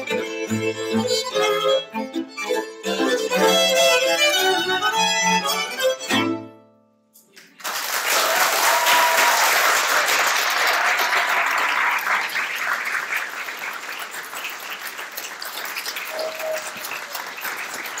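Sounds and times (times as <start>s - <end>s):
audience applauding: 7.4s - 18.0s.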